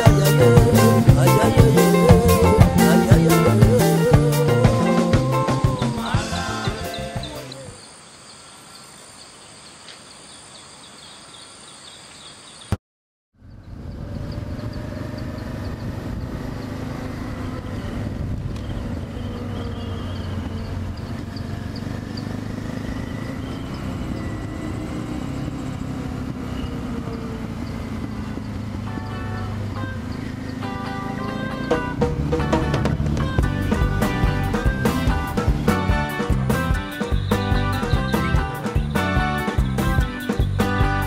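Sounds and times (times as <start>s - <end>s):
motorcycle engine running: 0.0s - 7.4s, 13.4s - 41.0s
music: 0.0s - 7.8s, 28.9s - 41.0s
insect or bird chirps: 6.3s - 12.8s, 13.4s - 17.8s, 18.6s - 24.8s, 37.0s - 39.0s
wind and road noise: 13.4s - 41.0s.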